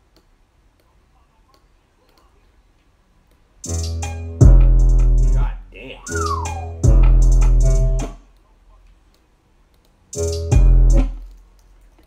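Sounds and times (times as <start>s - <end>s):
trap beat with heavy bass: 3.6s - 8.2s, 10.2s - 11.3s.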